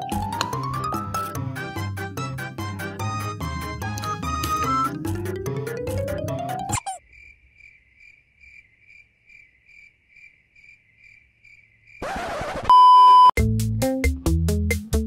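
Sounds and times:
cricket chirping sound effect: 0:06.7 - 0:12.1.

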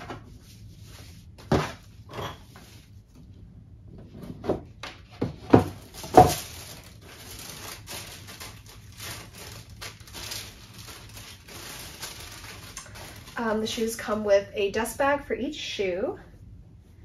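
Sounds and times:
wrapping rustling: 0:05.5 - 0:14.3.

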